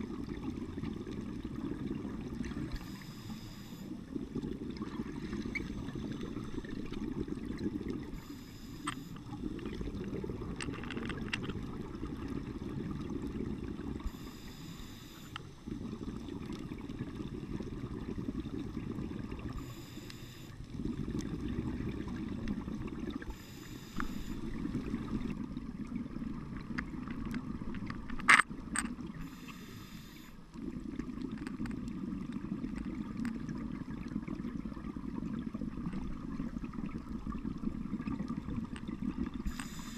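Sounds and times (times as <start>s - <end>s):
hissing regulator inhalations: 2.8s - 3.9s, 8.2s - 9.2s, 14.1s - 15.4s, 19.6s - 20.6s, 23.3s - 24.5s, 29.2s - 30.4s, 39.4s - 39.9s
bubbling underwater exhalations: 9.3s - 14.2s.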